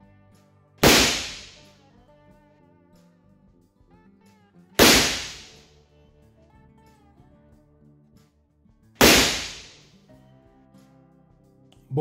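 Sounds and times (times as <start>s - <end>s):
revolver shot with echo: 0.8s - 1.6s, 4.8s - 5.6s, 9.0s - 9.8s.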